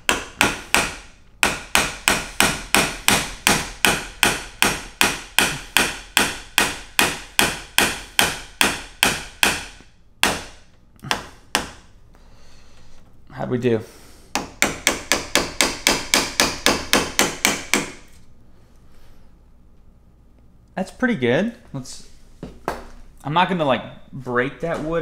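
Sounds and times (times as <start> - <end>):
hammer striking chisel tool: 0.0 - 11.9, 14.3 - 18.1.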